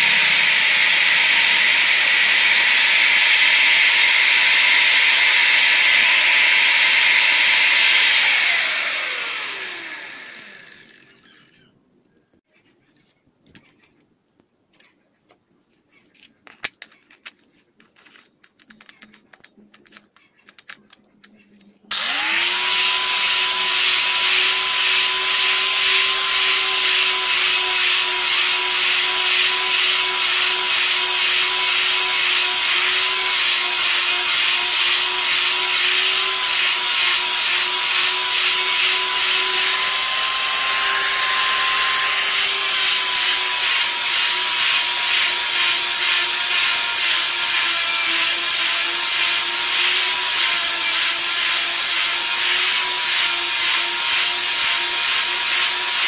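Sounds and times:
electric palm sander on wood: 0:00.0 - 0:11.4, 0:21.9 - 0:56.0.

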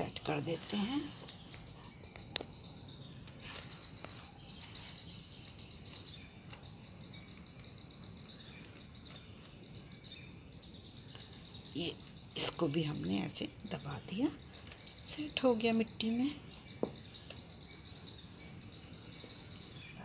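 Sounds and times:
insects trilling: 0:00.0 - 0:20.0
hands firming soil: 0:03.2 - 0:10.1, 0:14.6 - 0:20.0.

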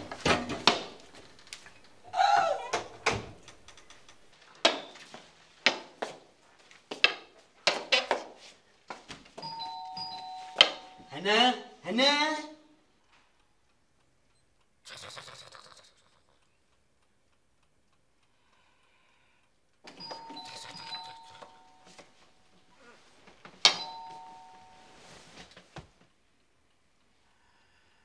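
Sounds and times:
electric doorbell ringing: 0:09.4 - 0:11.2, 0:19.9 - 0:22.0, 0:23.7 - 0:25.0
two-note chime: 0:09.4 - 0:11.2, 0:20.0 - 0:22.0, 0:23.7 - 0:25.1.

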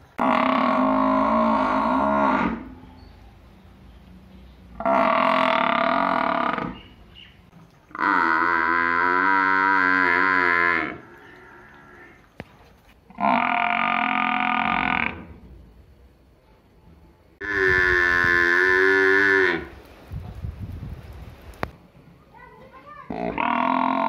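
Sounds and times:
water buffaloes mooing: 0:00.2 - 0:02.8, 0:04.8 - 0:06.9, 0:07.9 - 0:12.2, 0:13.1 - 0:15.3, 0:17.4 - 0:19.7, 0:23.1 - 0:24.0.

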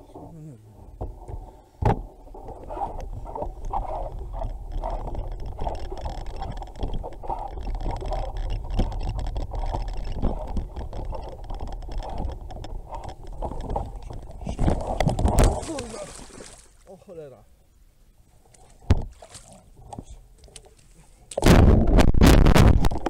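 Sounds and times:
bike tyres rumbling on dirt: 0:02.7 - 0:16.6
bike rattling and knocking: 0:03.2 - 0:15.9.

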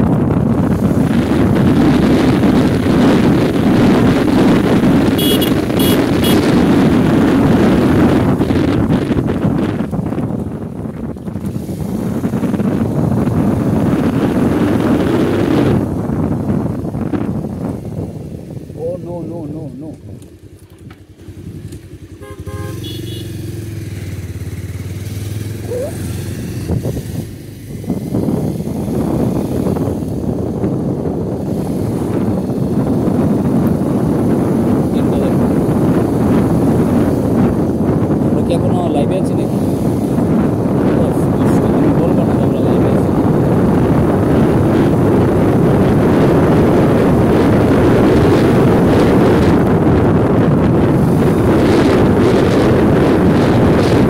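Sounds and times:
wind buffeting microphone: 0:00.0 - 0:54.0
vehicle engine running: 0:00.1 - 0:30.9
short horn beeps: 0:05.1 - 0:06.5, 0:22.2 - 0:23.4
short high-pitched tones: 0:05.2 - 0:06.4.

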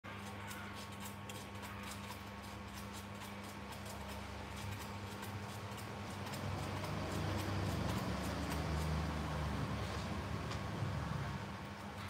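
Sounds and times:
steady low hum: 0:00.1 - 0:12.0
monkey chewing wet clicks: 0:00.3 - 0:09.2.

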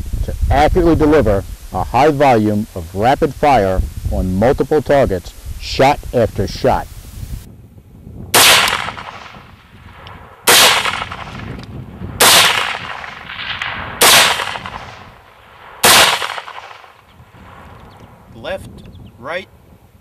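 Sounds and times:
rifle shots with echo: 0:08.3 - 0:17.6.

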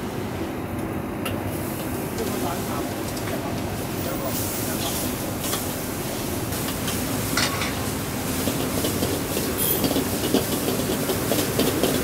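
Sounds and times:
gas burner rushing: 0:00.0 - 0:12.0
noodles sizzling: 0:04.0 - 0:12.0
spatula scraping wok: 0:06.6 - 0:11.5.

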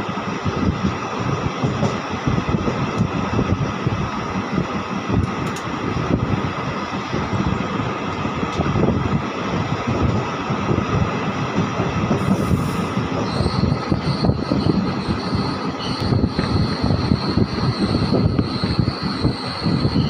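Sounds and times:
train wheels rumbling on rails: 0:00.0 - 0:20.0
thin high squeal: 0:13.2 - 0:20.0.

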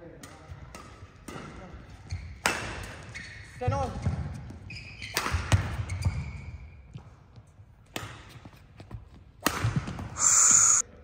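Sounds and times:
court shoes squealing: 0:04.7 - 0:05.2, 0:05.9 - 0:06.6, 0:10.2 - 0:10.8
racket striking shuttlecock: 0:09.4 - 0:10.0.

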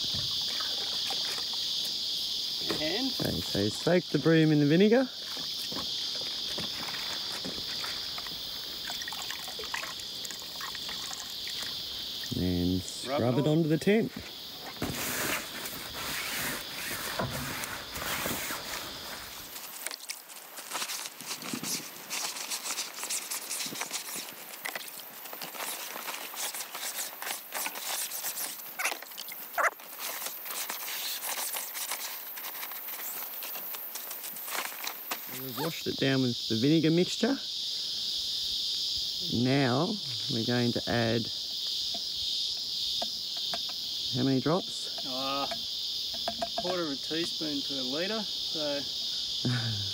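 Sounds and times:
high-pitched insect chorus: 0:00.0 - 0:49.9
water trickling and dripping: 0:08.1 - 0:12.4
broom sloshing in a bucket: 0:14.8 - 0:20.0.

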